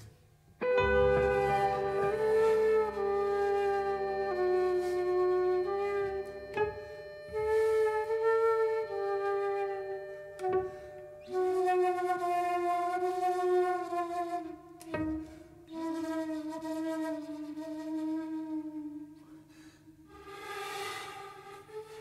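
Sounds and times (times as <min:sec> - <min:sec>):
wind instrument melody: 0:00.0 - 0:19.5, 0:20.1 - 0:22.0
faint low drone: 0:00.6 - 0:12.0.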